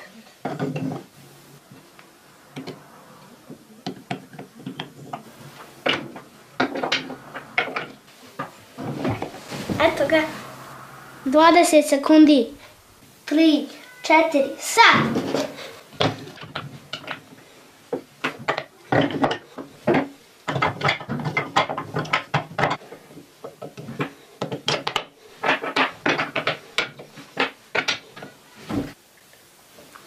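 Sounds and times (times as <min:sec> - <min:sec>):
wooden pieces knocking together: 0:03.5 - 0:09.3, 0:15.3 - 0:28.9.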